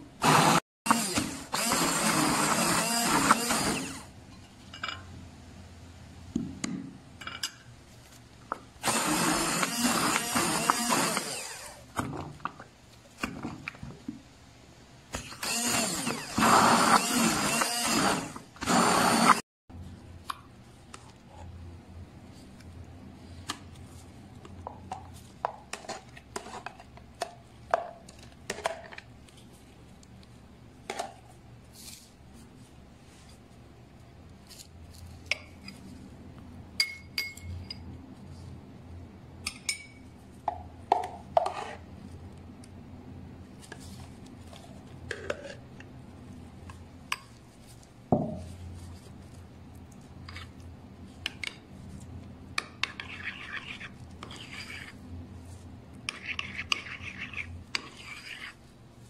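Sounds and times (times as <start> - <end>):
stick blender running: 0.2 - 4.1, 8.8 - 11.8, 15.2 - 19.4
metal spoon clinking ceramic bowl: 36.8 - 37.8, 39.5 - 40.0.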